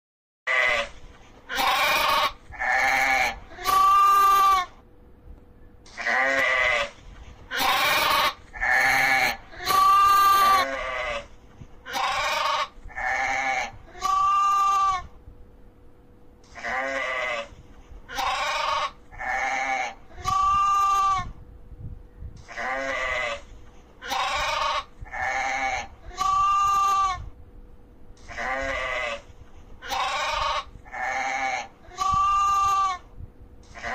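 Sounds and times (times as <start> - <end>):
sheep bleating: 0.5 - 0.9, 1.5 - 4.8, 5.9 - 11.3, 11.9 - 15.1, 16.5 - 21.3, 22.5 - 27.3, 28.2 - 33.1.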